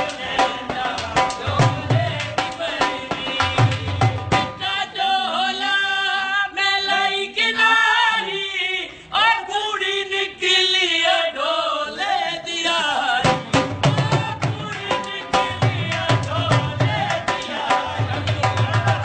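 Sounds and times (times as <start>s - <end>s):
drum beat: 0.1s - 4.6s, 13.2s - 19.0s.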